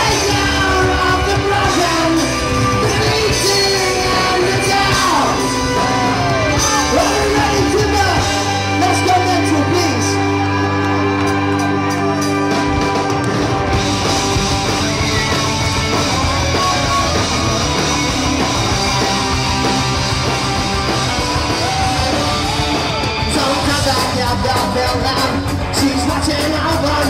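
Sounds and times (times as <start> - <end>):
person singing: 0.0 - 10.0, 21.5 - 27.0
rock band playing loud: 0.0 - 27.0.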